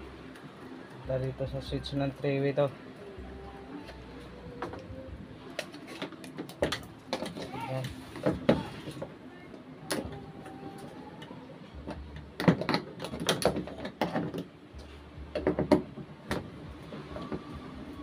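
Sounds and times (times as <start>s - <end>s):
wire and plastic parts knocking: 11.8s - 17.5s.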